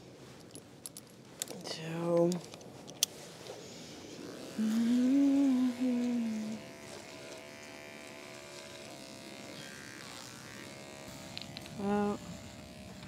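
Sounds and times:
electric clippers buzzing: 3.9s - 13.0s.

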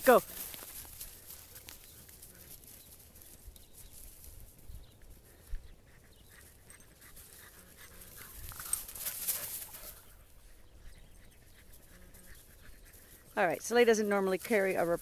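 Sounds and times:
dogs scrambling through dry grass: 0.0s - 15.0s
dog panting: 5.2s - 13.4s.

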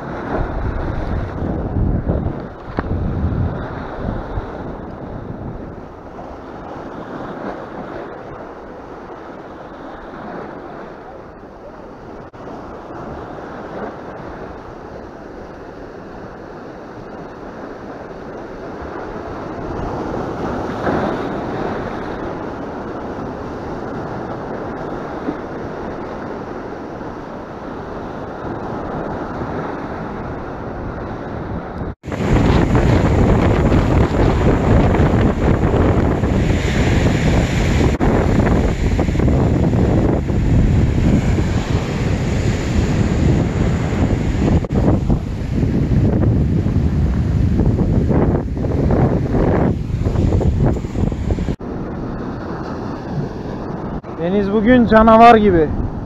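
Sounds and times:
wind buffeting microphone: 0.0s - 56.0s
waves breaking on rocks: 11.9s - 55.7s.

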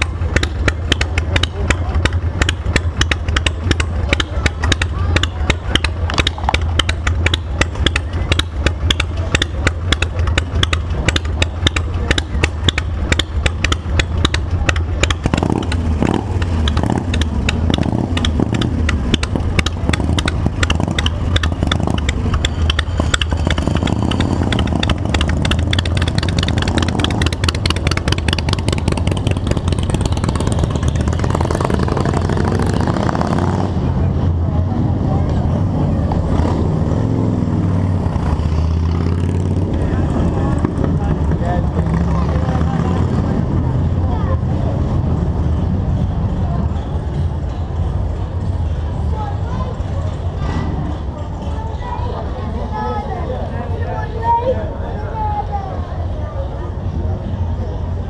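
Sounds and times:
motorcycle throttle blips: 0.0s - 44.0s
motorcycle engine idling: 0.0s - 52.4s.

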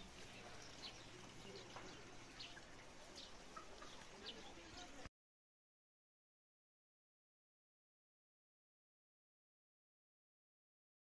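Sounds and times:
faint bird chirps: 0.0s - 5.0s.

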